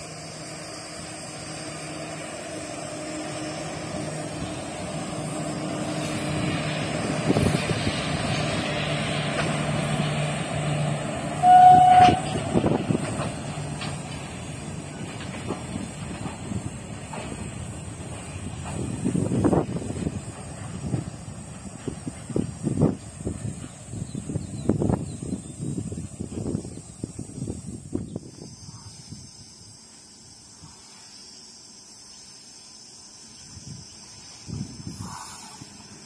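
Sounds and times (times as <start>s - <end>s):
electric locomotive motors humming: 0.0s - 36.0s
wheels clicking over rail joints: 3.9s - 24.0s
train horn blast: 11.3s - 12.7s.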